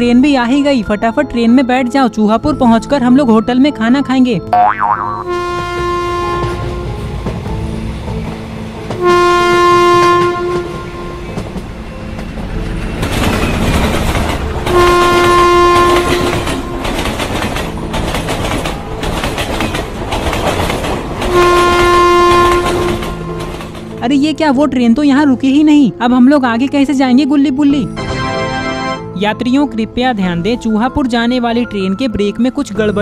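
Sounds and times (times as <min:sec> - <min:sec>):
train horn blasts: 0:05.2 - 0:07.2, 0:09.0 - 0:11.4, 0:14.7 - 0:17.0, 0:21.3 - 0:23.6
train rumbling on rails: 0:05.3 - 0:25.5.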